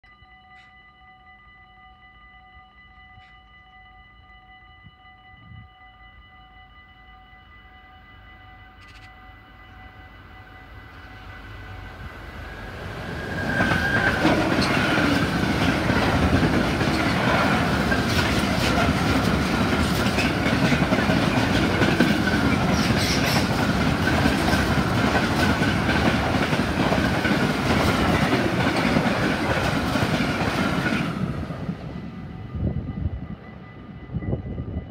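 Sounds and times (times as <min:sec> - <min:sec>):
train wheels clattering on rails: 0:13.0 - 0:32.0.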